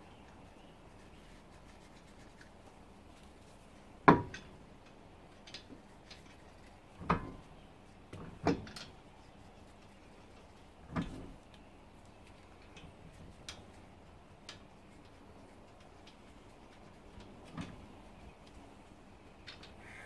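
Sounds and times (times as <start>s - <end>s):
dull knocks of wheel on hub: 4.0s - 4.5s.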